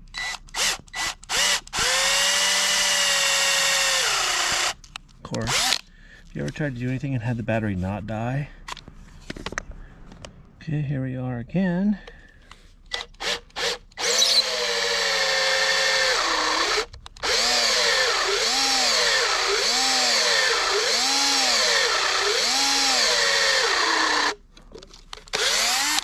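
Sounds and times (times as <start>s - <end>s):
battery drill spinning: 0.1s - 4.8s, 5.5s - 5.8s, 12.9s - 24.4s, 25.3s - 26.0s.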